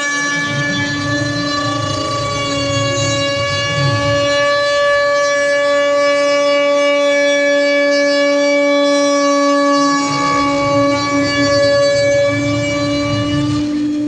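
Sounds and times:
bit cutting wood rumble: 0.0 - 6.7, 9.6 - 14.0
spindle whine: 0.0 - 14.0.

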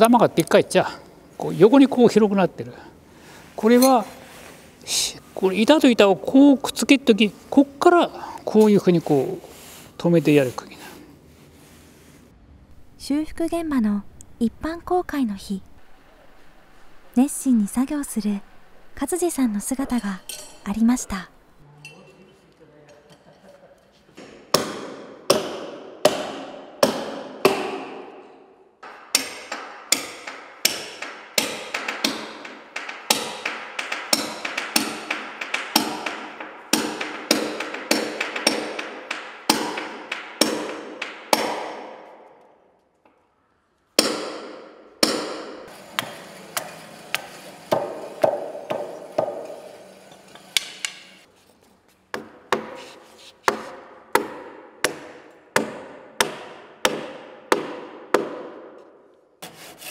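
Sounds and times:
hammer striking wood: 24.2 - 28.2, 28.8 - 42.2, 44.0 - 49.8, 52.1 - 58.8.

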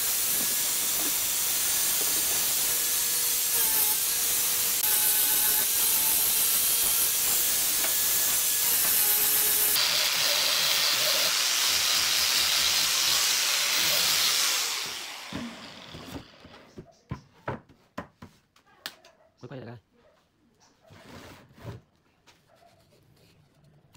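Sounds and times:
disc sander on wood: 0.0 - 16.5.

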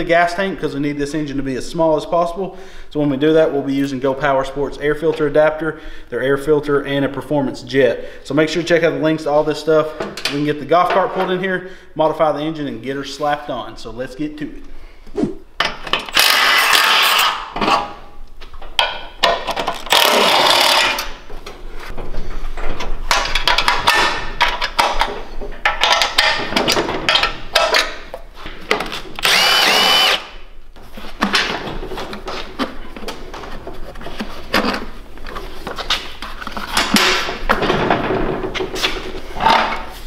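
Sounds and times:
cordless impact tool bursts: 16.1 - 17.4, 19.8 - 21.1, 29.2 - 30.4.

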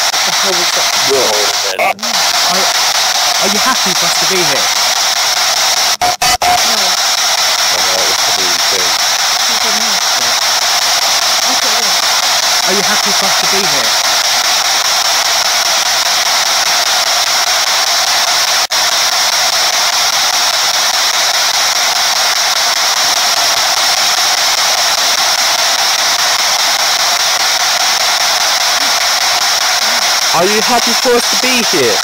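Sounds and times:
radio static hiss: 0.0 - 32.0.

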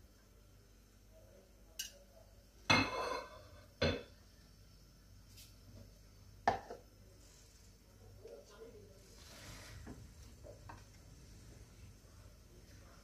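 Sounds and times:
steel cookware clanking: 2.7 - 4.1.

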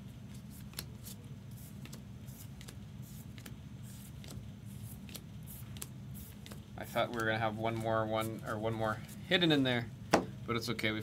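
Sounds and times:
steady low hum: 0.0 - 11.0
cards being flipped through: 0.3 - 8.3.

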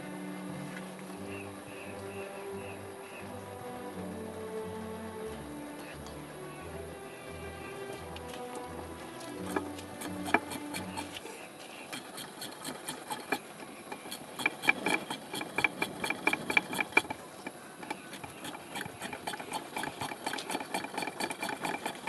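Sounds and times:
hand pump clicking strokes: 7.5 - 22.0.

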